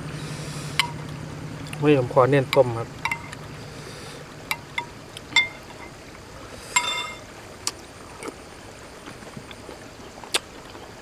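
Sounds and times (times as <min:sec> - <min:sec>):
metal spoon clinking glass bowl: 0:03.0 - 0:03.4, 0:04.5 - 0:05.9, 0:06.8 - 0:07.2.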